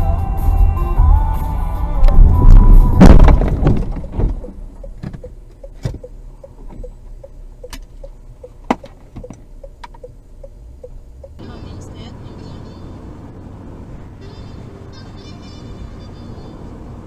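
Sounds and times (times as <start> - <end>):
car crash of metal and plastic: 3.0 - 4.4
faint regular ticking: 4.4 - 8.6, 9.2 - 11.4.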